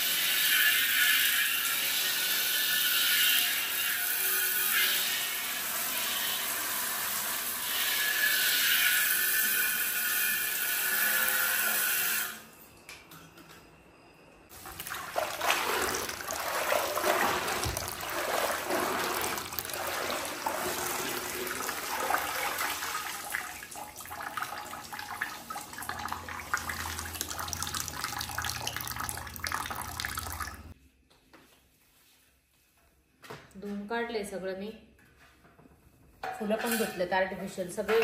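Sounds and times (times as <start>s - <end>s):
water running and splashing: 14.6s - 30.7s.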